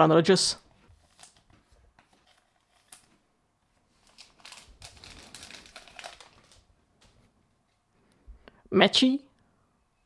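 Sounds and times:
cards rustling: 1.0 - 3.2, 3.8 - 7.2
foil wrapper crinkling: 3.9 - 6.7.

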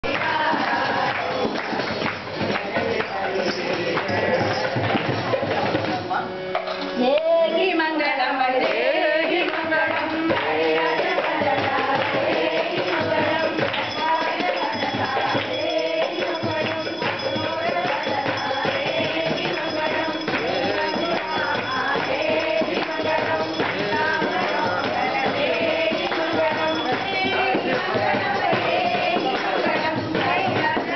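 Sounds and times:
group devotional singing: 0.0 - 5.9, 7.0 - 30.9
jingling percussion: 0.0 - 7.0, 8.6 - 30.9.

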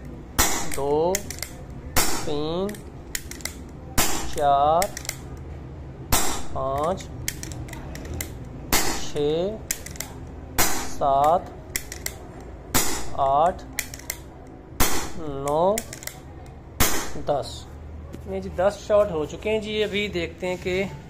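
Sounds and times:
air pistol shots: 0.4 - 2.5, 3.2 - 5.2, 6.1 - 6.6, 8.7 - 11.2, 11.8 - 14.0, 14.8 - 16.1, 16.8 - 17.4.

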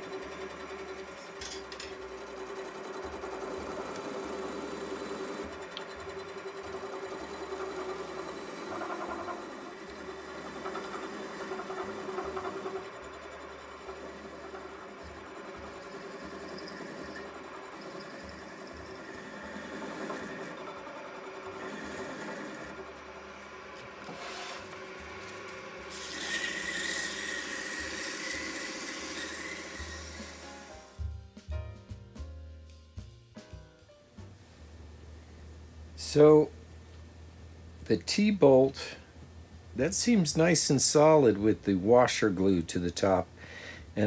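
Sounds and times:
tool scraping spinning wood: 0.0 - 30.5
wood lathe motor running: 0.0 - 30.7
sandpaper hissing on spinning wood: 7.6 - 12.9, 24.1 - 24.7, 25.9 - 30.8.

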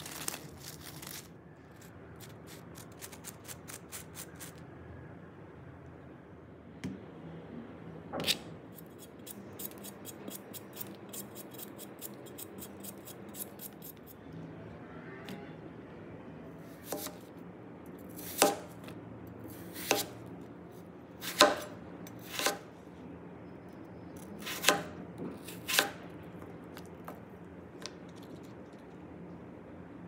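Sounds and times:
knife cutting on cutting board: 19.5 - 20.1.

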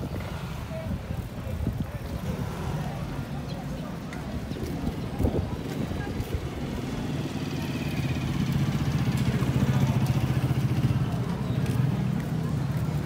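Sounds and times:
motorcycle engine at low speed: 6.0 - 12.2.

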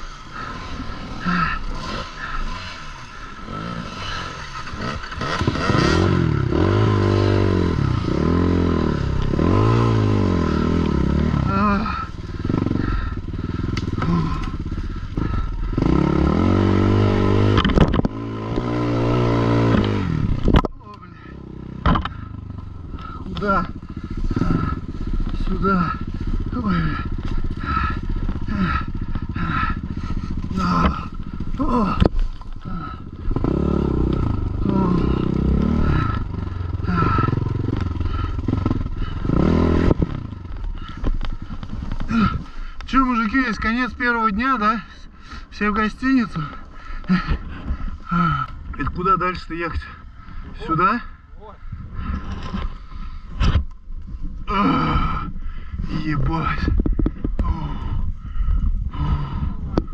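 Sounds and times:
motorcycle engine pulling: 0.0 - 59.9.

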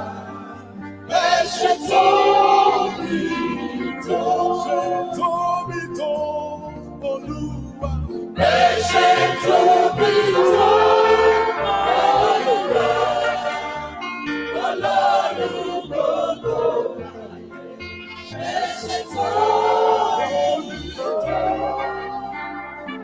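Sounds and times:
choir and congregation singing: 0.0 - 5.8, 8.4 - 23.0.

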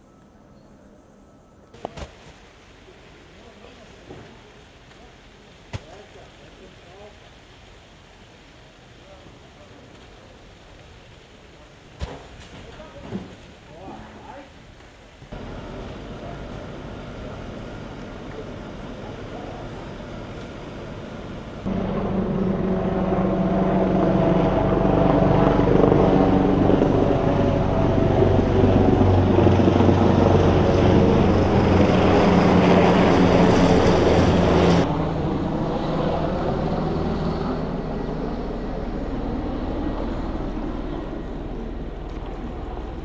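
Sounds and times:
loud engine drone: 15.4 - 43.0.

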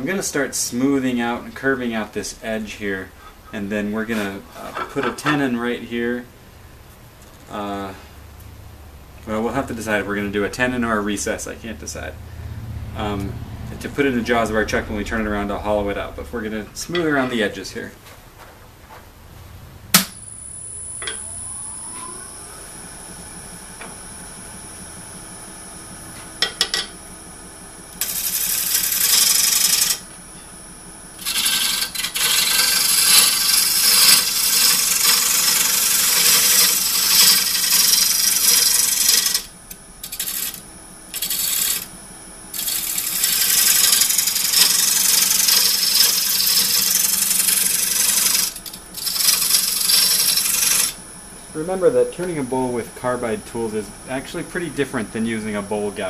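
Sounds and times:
wood lathe running: 20.2 - 30.4, 31.0 - 56.0
cutter scraping spinning wood: 28.0 - 30.4, 31.1 - 51.0.

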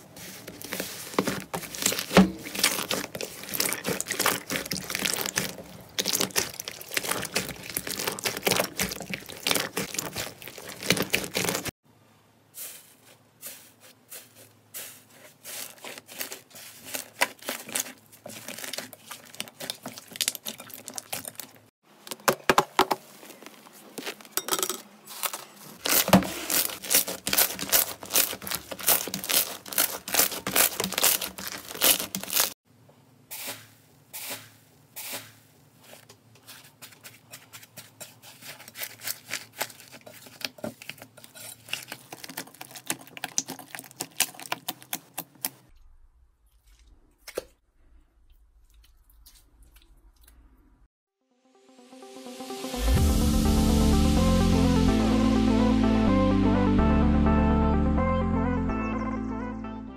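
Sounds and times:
hands squeezing crackling slime: 1.4 - 11.7, 25.9 - 32.6, 38.4 - 45.6.

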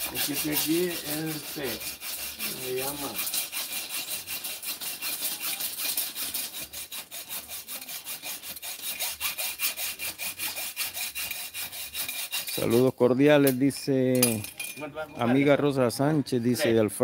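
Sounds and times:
hand saw cutting: 0.0 - 13.6.

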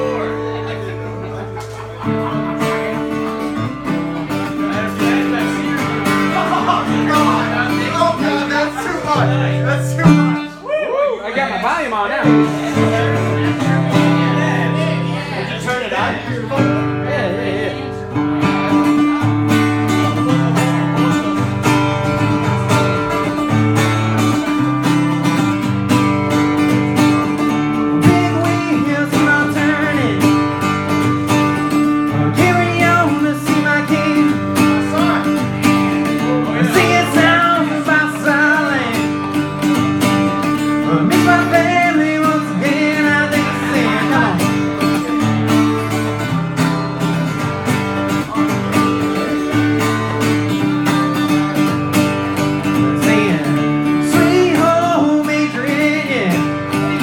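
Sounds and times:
acoustic guitar strumming: 0.0 - 10.6, 12.0 - 57.0
person singing: 27.9 - 39.4, 40.2 - 46.2, 52.4 - 57.0.

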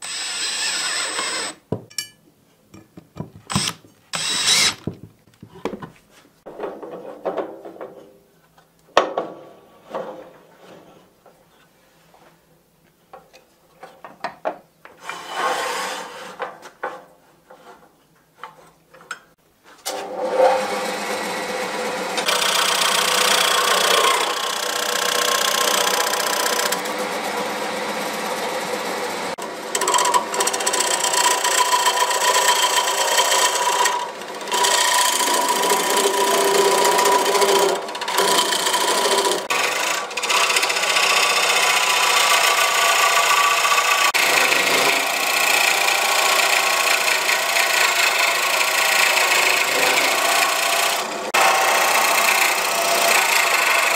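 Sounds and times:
lathe tool scraping wood: 3.5 - 4.9, 20.0 - 53.9.

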